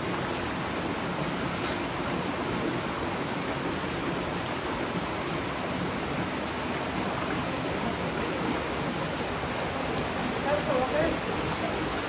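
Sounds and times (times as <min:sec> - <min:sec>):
small waterfall over rocks: 0:00.0 - 0:12.0
stream water rushing: 0:00.0 - 0:12.0.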